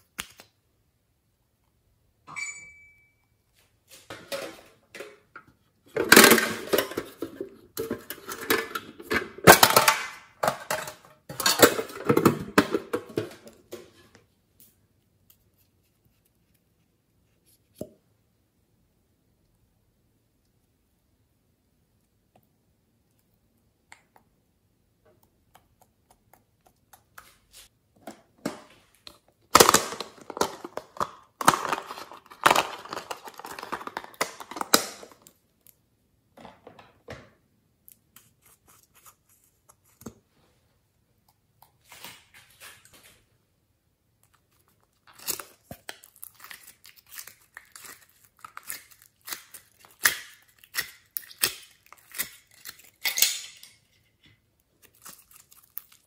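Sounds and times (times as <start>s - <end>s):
plastic containers clicking: 29.6s - 35.3s.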